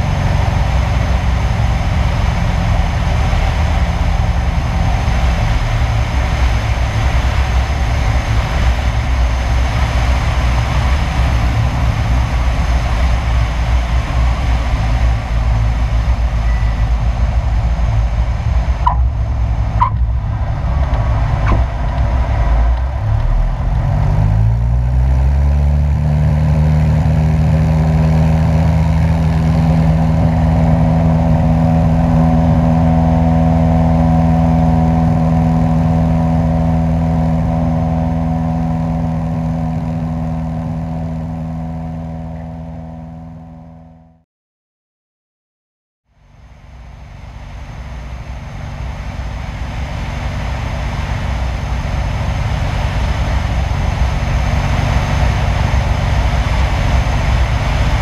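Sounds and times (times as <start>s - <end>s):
wind rush: 0.0s - 25.4s, 47.2s - 58.0s
light plane engine drone: 0.0s - 44.2s, 46.1s - 58.0s.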